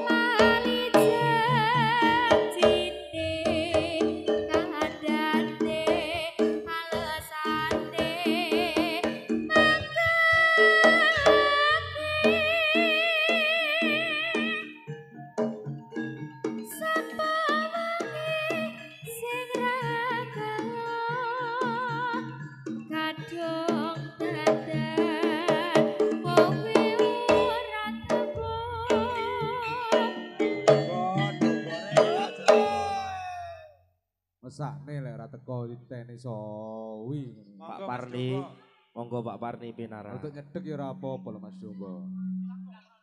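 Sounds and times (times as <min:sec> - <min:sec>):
drum strokes: 0:00.0 - 0:13.4, 0:23.8 - 0:33.5
person singing with vibrato: 0:00.0 - 0:14.8, 0:16.7 - 0:33.7
gamelan ensemble over loudspeakers: 0:00.0 - 0:33.6
wavering sung melody: 0:00.0 - 0:33.6, 0:40.2 - 0:42.7
metallophones ringing: 0:06.4 - 0:33.6
metallophone and gong notes: 0:24.1 - 0:33.4.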